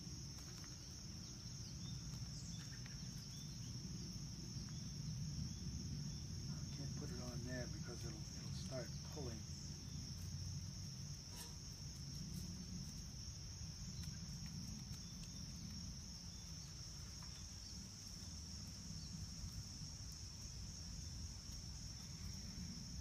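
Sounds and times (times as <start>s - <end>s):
insects trilling: 0.0s - 23.0s.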